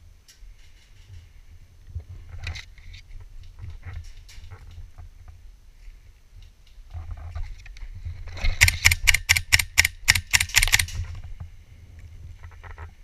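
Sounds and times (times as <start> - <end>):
muffled airsoft rifle shots: 8.5 - 11.0.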